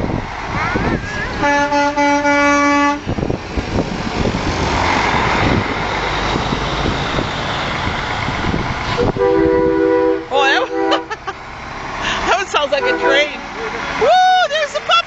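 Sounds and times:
truck passing by: 0.0 - 15.0
truck horn: 1.3 - 3.1, 8.9 - 11.3, 12.3 - 13.4.

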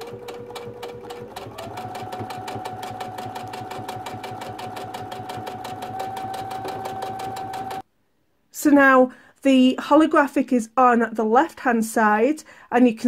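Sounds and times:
sewing machine stitching: 0.0 - 7.8.

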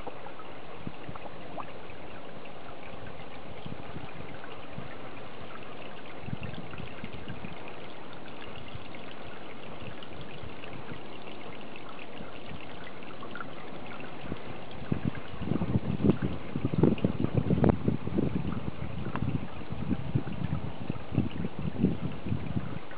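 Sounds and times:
water trickling into pond: 0.0 - 22.9.

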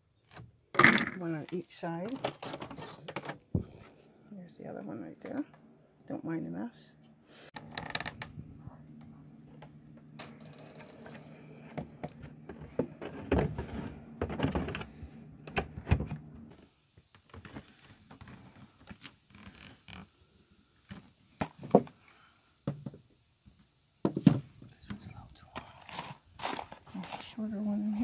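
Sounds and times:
steady low hum: 2.8 - 16.6.

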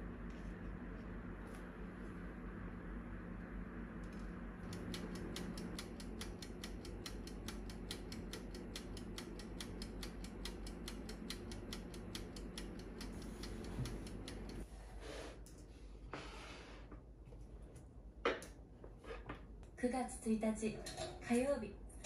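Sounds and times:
low oven hum: 0.0 - 22.0
wind-up timer ticking: 4.6 - 14.6.

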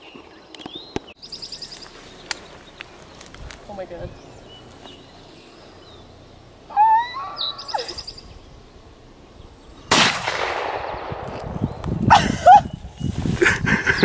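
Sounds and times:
gunshot with echo: 9.9 - 11.4.

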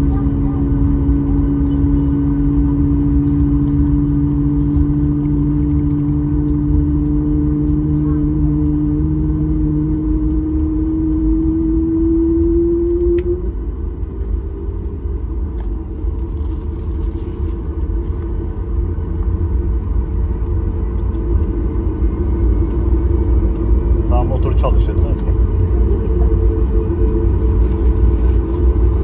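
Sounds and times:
jet engine rumble: 0.0 - 29.0
rising jet engine whine: 0.0 - 29.0.

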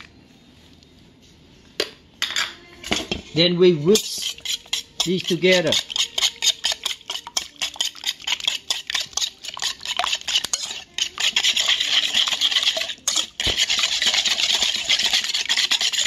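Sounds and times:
whisk beating in metal bowl: 3.9 - 16.0.

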